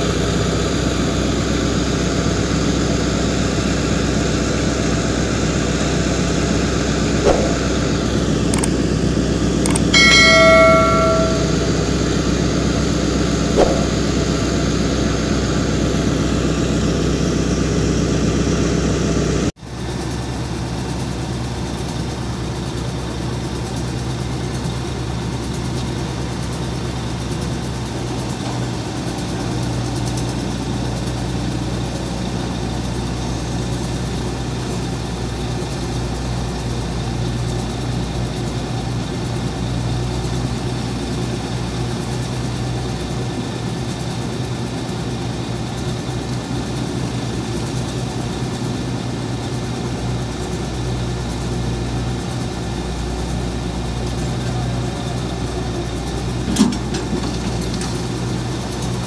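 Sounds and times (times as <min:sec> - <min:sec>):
excavator diesel engine running: 0:00.0 - 0:59.0
metallic clang: 0:07.2 - 0:07.8, 0:09.7 - 0:11.8, 0:13.6 - 0:14.1.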